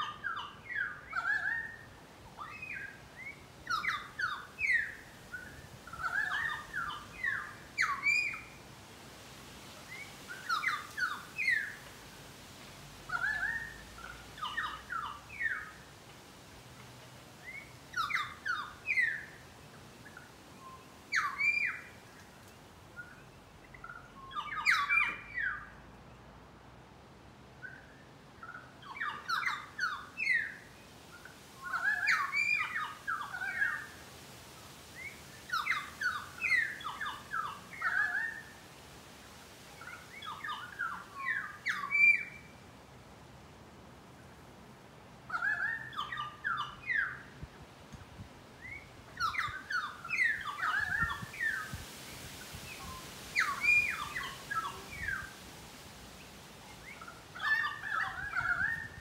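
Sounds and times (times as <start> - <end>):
birds calling ringing notes: 0.0 - 8.7, 13.1 - 15.9, 17.5 - 25.8, 56.7 - 59.0.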